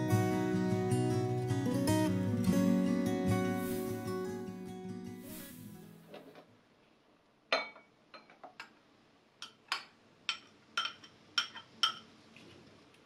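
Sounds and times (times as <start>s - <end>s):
metal spoon clinking on glass: 9.4s - 12.1s.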